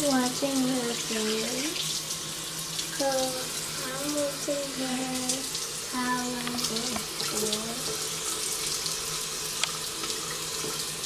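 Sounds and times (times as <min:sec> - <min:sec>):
sink tap running: 0:00.0 - 0:11.0.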